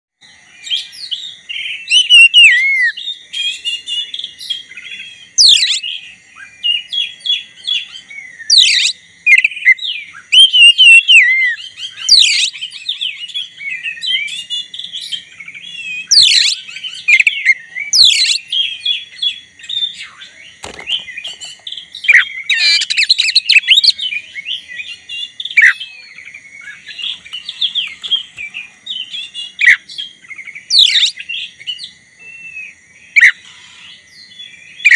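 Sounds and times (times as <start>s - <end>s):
bird song warbling: 0.2s - 34.9s
sharp upward-sweeping bird whistles: 0.7s - 7.2s, 7.8s - 20.2s, 22.0s - 33.4s.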